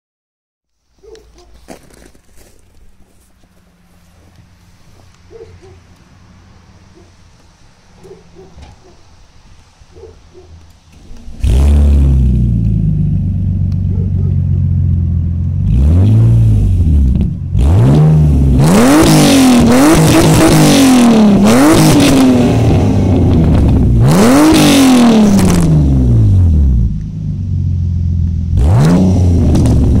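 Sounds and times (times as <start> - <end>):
car engine idling and revving: 2.8 - 30.0.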